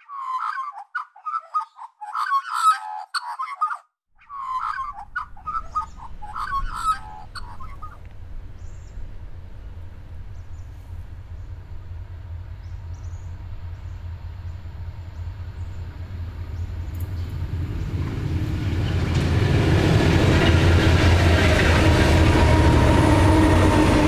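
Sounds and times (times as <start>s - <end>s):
bird chirping: 0.0s - 18.2s
diesel locomotive rumble: 4.3s - 24.0s.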